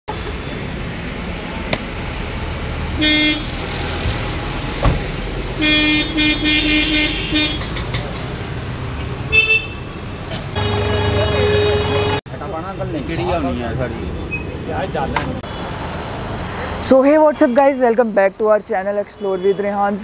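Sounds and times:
traffic rumble: 0.1s - 20.0s
vehicle horns honking: 3.0s - 3.7s, 5.5s - 7.9s, 9.3s - 12.2s.

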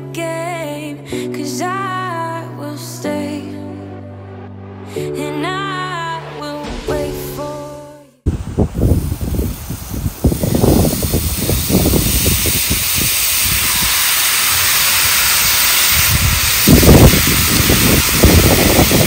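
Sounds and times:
low rumbles: 3.6s - 18.9s
food sizzling on a griddle: 9.1s - 19.0s.

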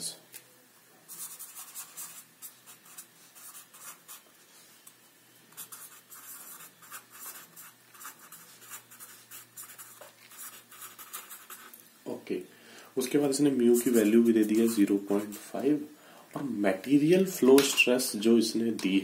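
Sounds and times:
faint low hum: 0.0s - 19.0s
pen scratching on paper: 1.1s - 4.2s, 5.6s - 11.7s, 13.7s - 15.6s.

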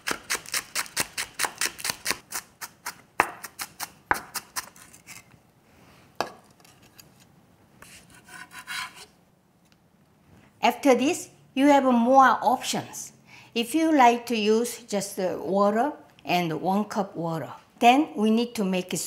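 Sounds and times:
knife chopping on wooden board: 0.0s - 4.7s.

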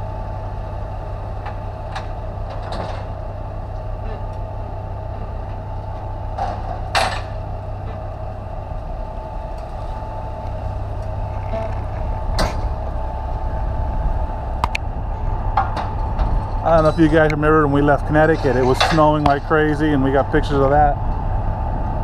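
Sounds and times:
diesel truck engine idling: 0.0s - 22.0s
sharp metallic clanks: 18.2s - 19.6s.

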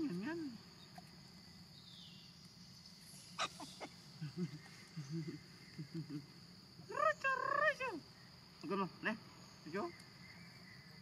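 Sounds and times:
high insect drone: 0.0s - 11.0s
young monkeys calling: 3.2s - 8.0s.

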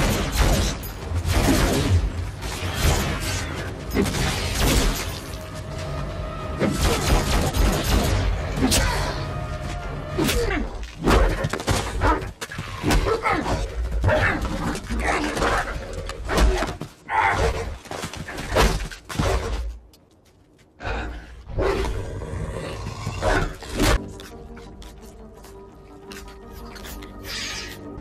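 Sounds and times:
beast snarling and growling: 20.8s - 24.0s.

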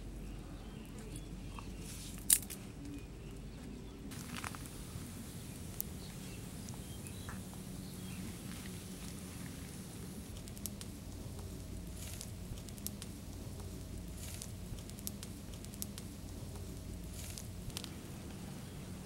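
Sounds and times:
twig fire crackling: 0.0s - 3.0s, 4.1s - 19.0s
sharp pops: 8.4s - 18.1s.

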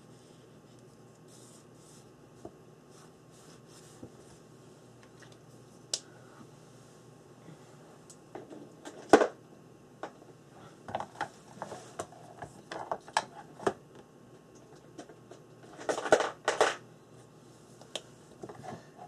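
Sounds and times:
art supplies clattering: 14.8s - 16.8s.

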